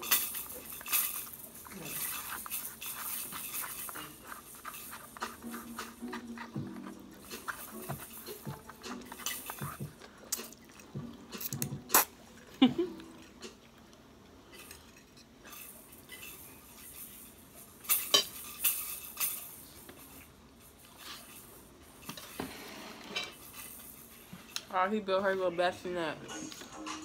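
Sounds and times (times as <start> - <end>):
forks clinking and scraping plates: 0.0 - 11.8, 14.5 - 20.2, 20.8 - 24.6.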